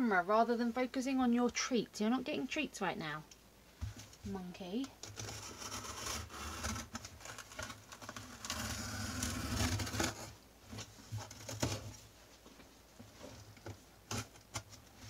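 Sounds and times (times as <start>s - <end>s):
cardboard box cut and torn: 5.1s - 10.4s.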